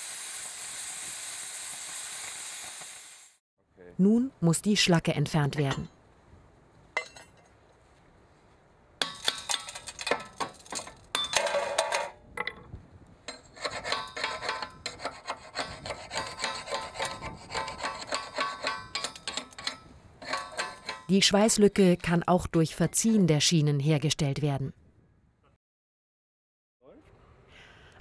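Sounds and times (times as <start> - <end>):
metal rasping on metal: 13.3 - 21.1.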